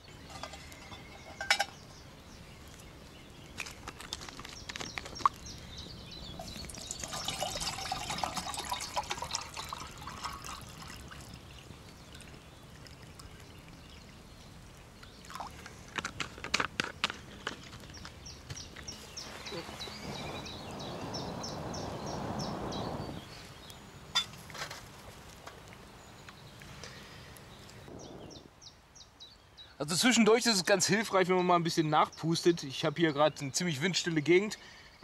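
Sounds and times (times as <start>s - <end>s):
water pouring into metal cup: 6.4s - 14.2s.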